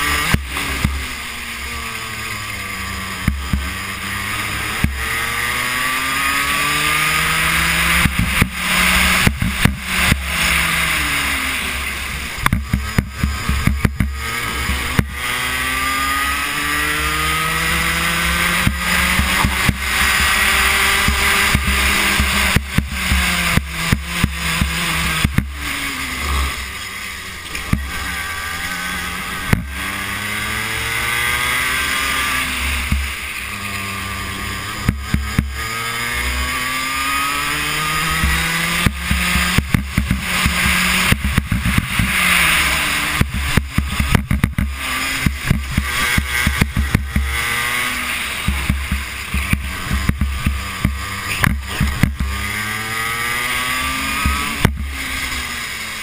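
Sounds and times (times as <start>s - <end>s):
kart engine revving: 0.0s - 56.0s
sharp clicks and knocks: 3.2s - 3.8s, 7.8s - 10.7s, 12.4s - 15.3s, 18.4s - 25.7s, 29.5s - 29.8s, 34.8s - 35.8s, 38.1s - 53.0s, 54.2s - 55.0s.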